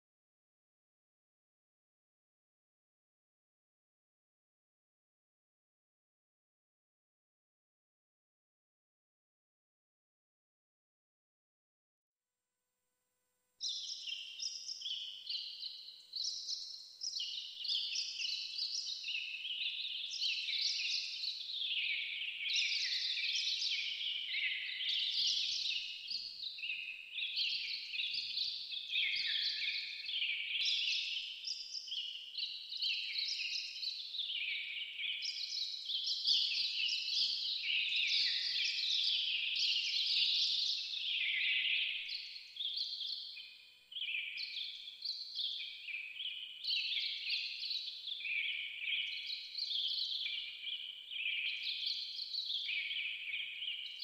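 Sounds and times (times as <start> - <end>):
small birds chirping: 13.6 - 54.0.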